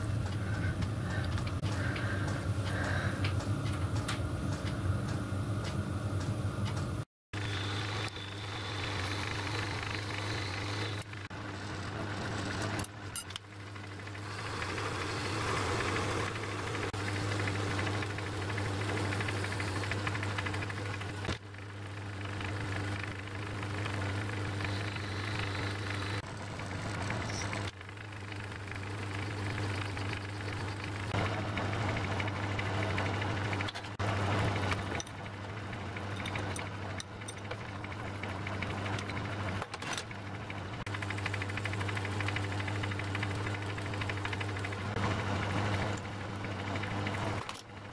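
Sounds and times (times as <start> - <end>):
lathe motor hum: 0.0 - 47.9.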